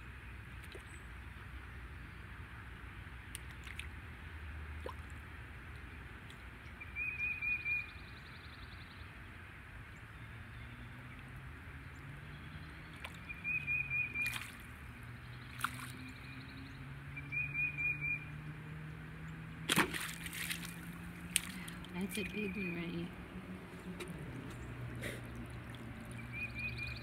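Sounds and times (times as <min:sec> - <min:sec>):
low steady hum: 0:19.3 - 0:27.0
water trickling and dripping: 0:19.9 - 0:27.0.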